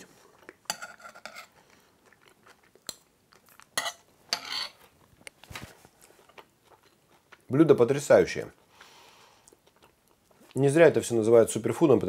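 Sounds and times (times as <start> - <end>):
faint chewing: 0.0 - 4.1, 4.8 - 7.5, 8.5 - 10.7
spoon scraping a plate: 0.7 - 1.6, 3.8 - 4.9.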